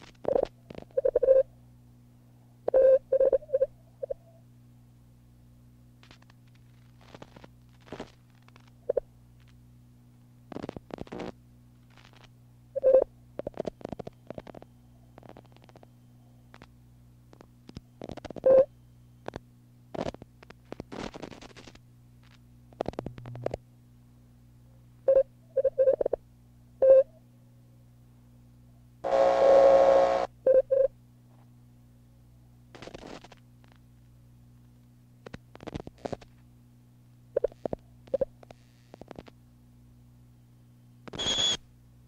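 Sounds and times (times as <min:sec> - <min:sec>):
crackling bursts and clicks: 0:00.0 - 0:01.5, 0:06.0 - 0:09.6, 0:10.2 - 0:23.7, 0:32.7 - 0:36.5, 0:37.3 - 0:39.4, 0:41.0 - 0:41.6
low electrical hum: 0:00.0 - 0:42.0.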